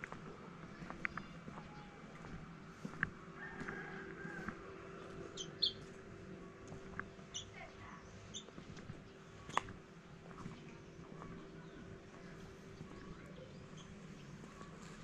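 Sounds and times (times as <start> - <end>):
steady low hum: 0.0 - 15.0
high bird chirps: 5.4 - 5.8, 7.3 - 7.6.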